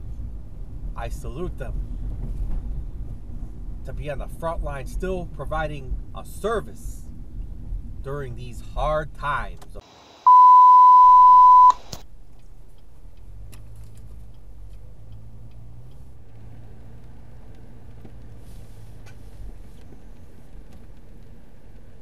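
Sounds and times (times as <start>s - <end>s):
electronic beep tone: 10.3s - 11.8s.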